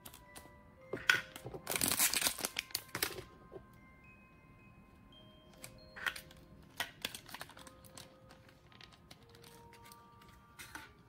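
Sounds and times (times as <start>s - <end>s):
soft background music: 0.0s - 11.0s
plastic bag crackling: 1.6s - 3.3s, 6.8s - 10.8s.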